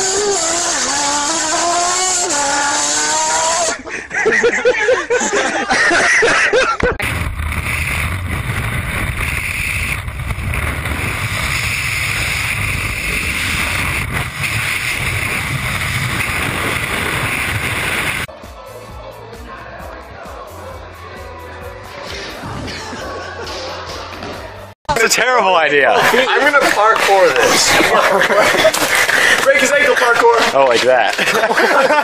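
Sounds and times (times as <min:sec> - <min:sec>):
man laughing: 0:03.8 - 0:07.0, 0:26.0 - 0:26.8, 0:27.4 - 0:29.9, 0:31.1 - 0:32.0
heavy wind rush: 0:07.0 - 0:18.3.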